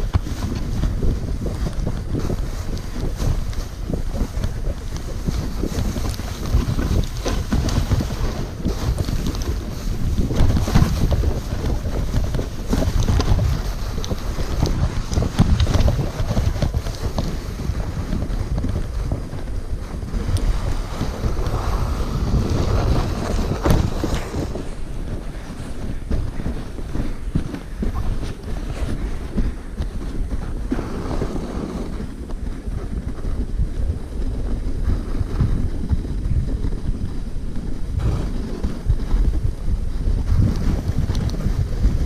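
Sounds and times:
runners scraping on snow: 0:00.0 - 0:42.0
wind buffeting microphone: 0:00.0 - 0:42.0
toboggan knocking over bumps: 0:20.7 - 0:29.5.

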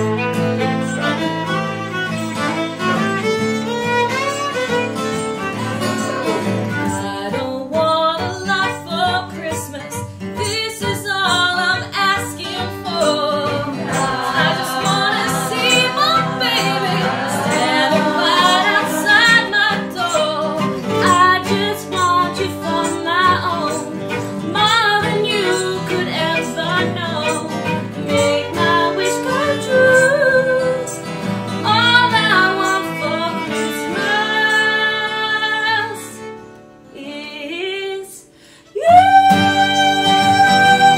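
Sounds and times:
strummed acoustic guitar: 0:00.0 - 0:37.0, 0:38.1 - 0:40.9
fiddle: 0:00.0 - 0:40.9
group singing in chorus: 0:13.4 - 0:20.3.

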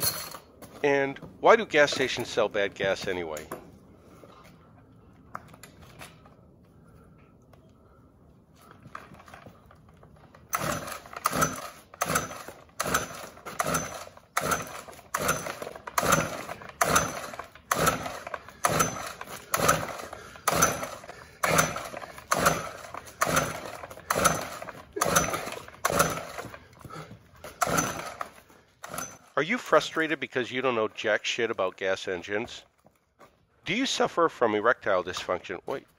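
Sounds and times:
recoil starter rope whirr: 0:08.6 - 0:30.2.

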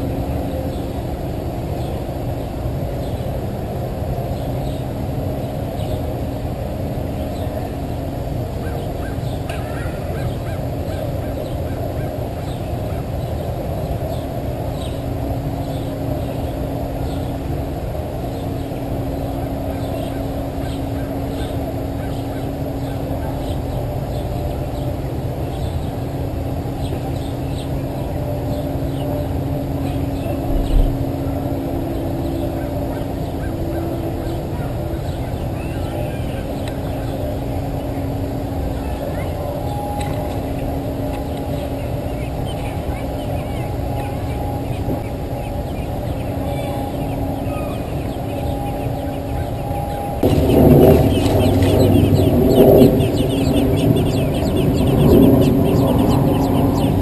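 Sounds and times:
low droning hum: 0:00.0 - 0:57.0
faint high bird chirps: 0:26.8 - 0:31.3.

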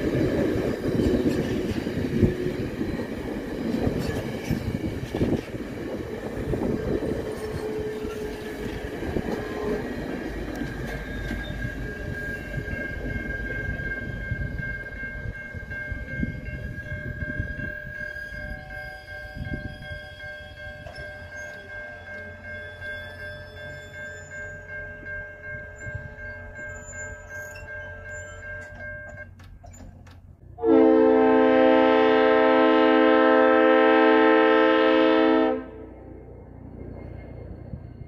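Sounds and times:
level-crossing warning bell: 0:00.0 - 0:29.8
train cars rolling over rails: 0:00.0 - 0:30.5.

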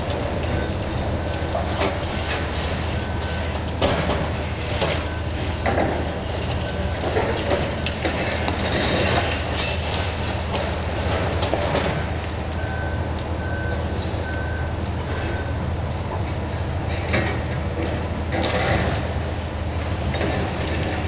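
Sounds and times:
concrete crunching and clattering: 0:00.0 - 0:12.4
diesel engines running: 0:00.0 - 0:21.0
metal squeals: 0:08.2 - 0:10.1.

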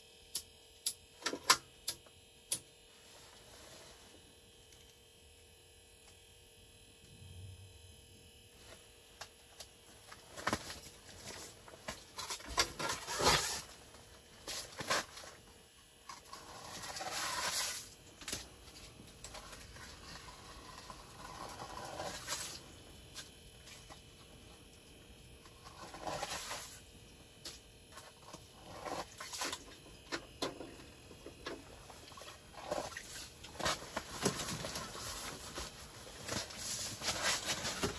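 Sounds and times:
ice skimmer scraping slush: 0:16.2 - 0:17.9, 0:19.2 - 0:22.7, 0:25.6 - 0:26.8.

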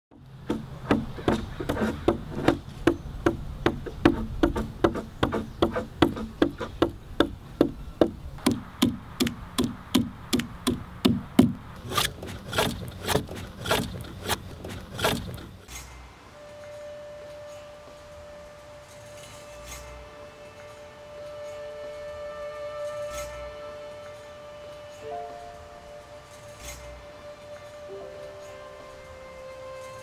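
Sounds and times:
adze chopping into wood: 0:00.4 - 0:15.5.

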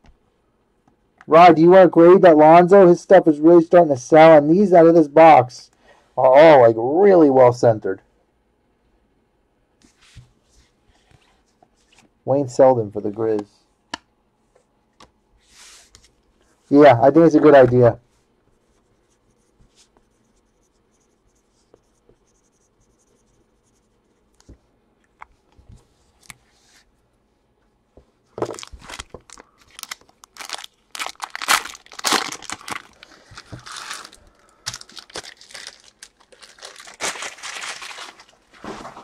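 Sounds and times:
foil wrapper tearing and crinkling: 0:28.5 - 0:38.4.

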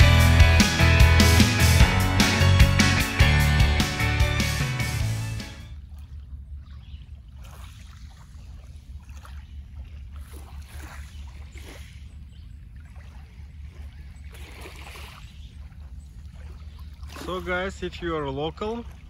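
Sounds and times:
small waves lapping on pebbles: 0:06.7 - 0:19.0.

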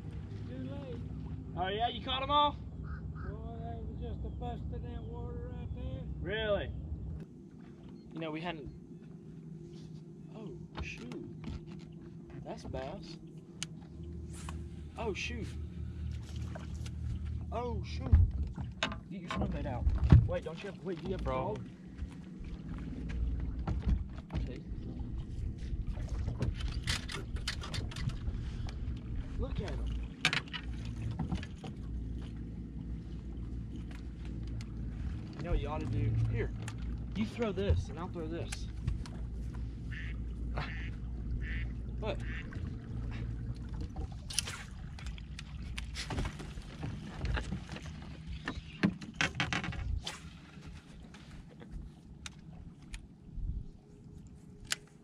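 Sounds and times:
waves slapping boat hull: 0:00.0 - 0:04.0, 0:09.8 - 0:53.9
low rumble: 0:00.0 - 0:48.3
water noise: 0:00.0 - 0:55.0
wind: 0:00.0 - 0:55.0
fishing rods clicking and clattering: 0:26.5 - 0:28.3, 0:29.7 - 0:31.8.

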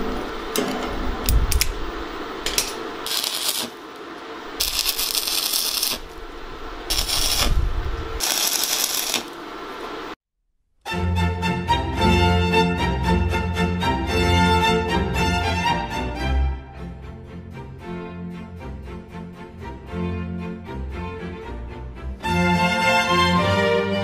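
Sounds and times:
arc welding crackling and hissing: 0:01.3 - 0:10.2
music: 0:10.9 - 0:24.0.

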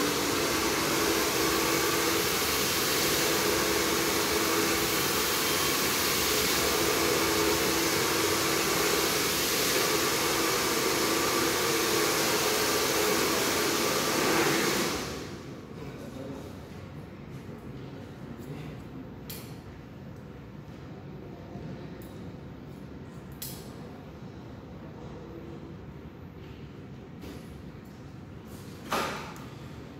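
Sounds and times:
hair dryer blowing: 0:00.0 - 0:15.5.

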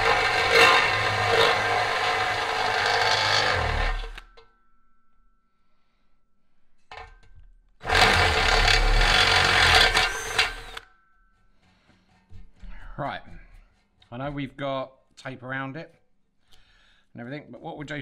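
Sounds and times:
cordless drill cutting metal: 0:00.0 - 0:04.3, 0:07.8 - 0:10.8.

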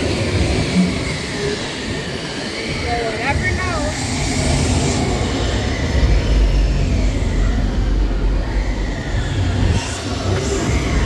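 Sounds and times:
deep rolling train rumble: 0:00.0 - 0:11.0.

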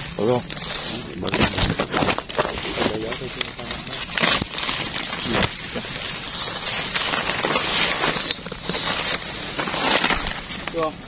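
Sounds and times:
dry grass rustling and crackling: 0:00.0 - 0:11.0.

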